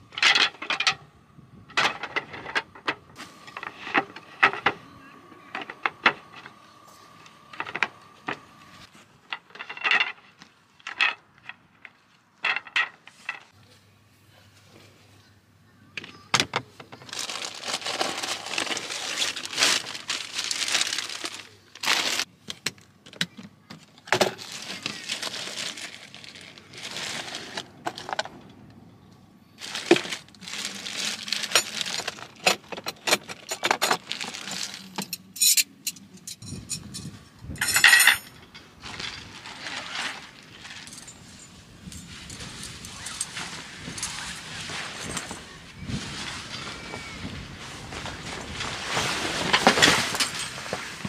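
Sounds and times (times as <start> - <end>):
plastic bag rustling and crinkling: 16.9 - 22.3, 24.1 - 28.3, 29.6 - 35.2, 38.8 - 51.0.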